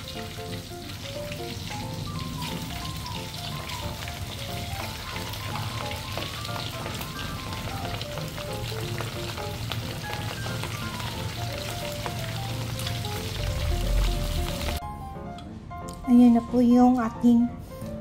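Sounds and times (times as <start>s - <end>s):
meatballs sizzling in hot oil: 0.0s - 14.8s
simple background music: 0.0s - 18.0s.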